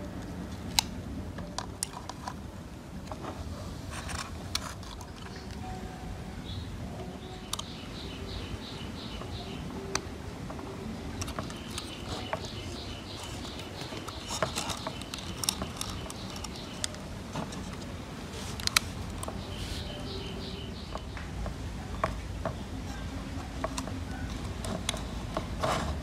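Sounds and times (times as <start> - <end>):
plastic connectors clicking: 4.0 - 5.6, 7.5 - 7.8, 11.2 - 17.9, 18.5 - 22.6, 23.4 - 25.8.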